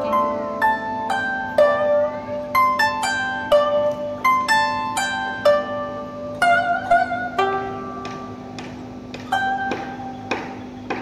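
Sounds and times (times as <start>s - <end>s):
plucked string melody: 0.0s - 11.0s.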